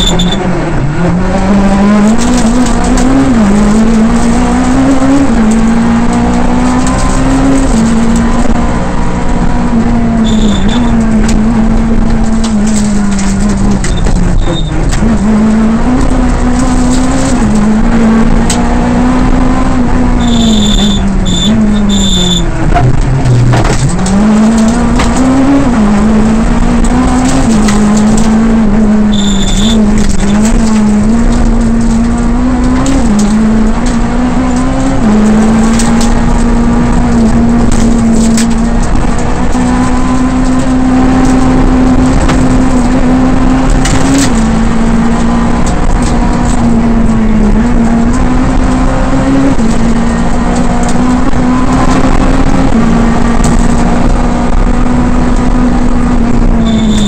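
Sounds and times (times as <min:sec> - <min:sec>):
short high beep: 0:00.0 - 0:00.5, 0:10.2 - 0:11.0, 0:13.9 - 0:14.7, 0:20.2 - 0:22.5, 0:29.1 - 0:29.8, 0:56.6 - 0:57.0
rally car engine revving: 0:00.0 - 0:57.0
sharp clicks and knocks: 0:10.2 - 0:18.7, 0:20.2 - 0:57.0.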